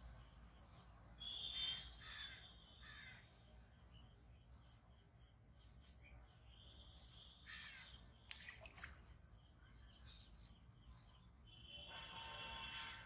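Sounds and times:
crow cawing faintly: 0:01.5 - 0:03.3, 0:07.5 - 0:08.0
fish splashing in water: 0:07.7 - 0:09.5.

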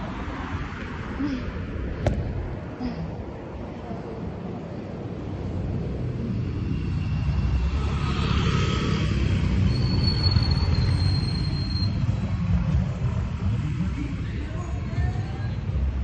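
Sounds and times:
wind rumbling on microphone: 0:00.5 - 0:06.3
motorcycle and car engines: 0:04.7 - 0:16.0.

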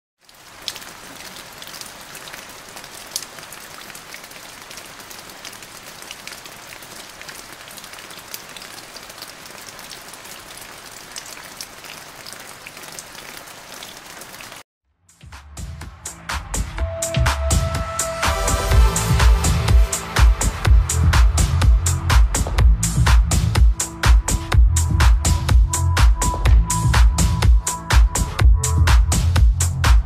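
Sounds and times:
rain hissing on ice: 0:00.2 - 0:14.6
sharp ticks of raindrops: 0:00.2 - 0:14.6.

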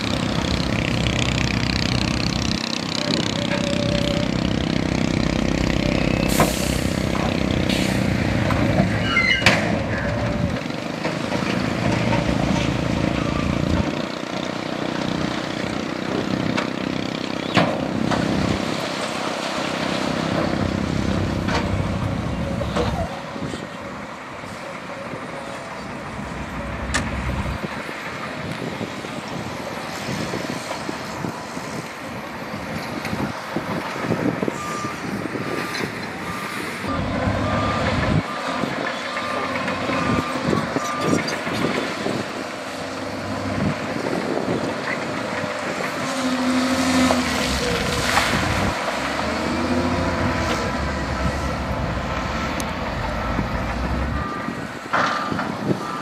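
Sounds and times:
heavy diesel machinery running: 0:00.0 - 0:56.0
reversing alarm beeping: 0:34.5 - 0:41.4, 0:52.9 - 0:56.0.

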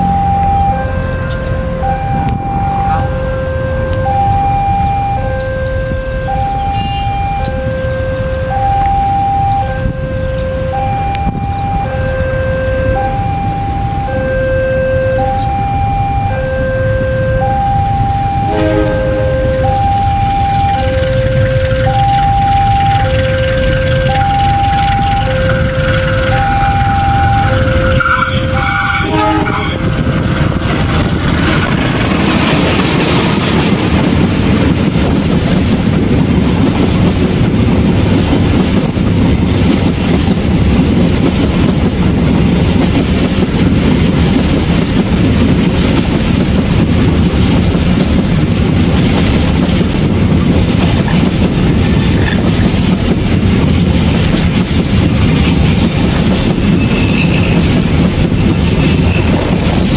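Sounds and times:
locomotive horn blasts: 0:00.0 - 0:30.5, 0:56.6 - 0:57.8, 0:58.7 - 0:59.5
train passing rumble: 0:00.0 - 0:59.9.

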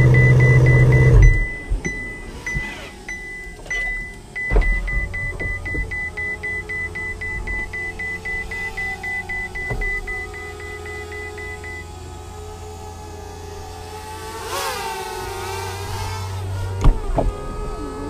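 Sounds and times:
rapid electronic warning beeps: 0:00.0 - 0:11.9
car engine idling: 0:00.0 - 0:18.0
single thump: 0:16.8 - 0:17.4.

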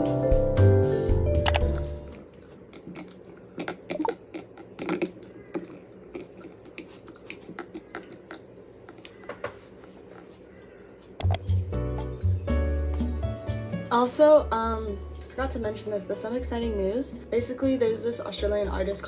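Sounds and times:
chewing mouth sounds: 0:02.2 - 0:09.1.

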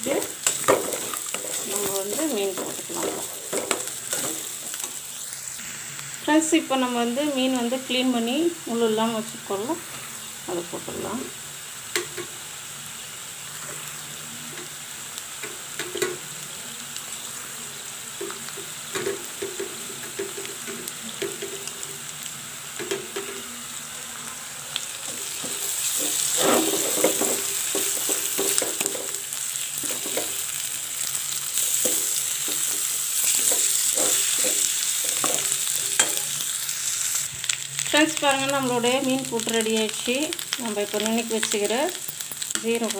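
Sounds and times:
food sizzling in a pan: 0:00.0 - 0:42.9
metal spatula scraping a pan: 0:25.3 - 0:29.2, 0:31.7 - 0:36.4.

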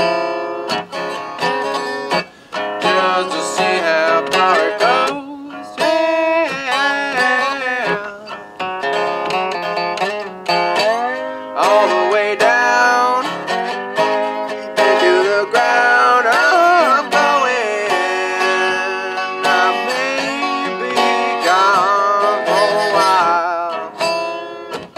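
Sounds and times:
resonator guitar blues picking: 0:00.0 - 0:24.9
man singing: 0:02.8 - 0:08.4, 0:10.7 - 0:24.4.

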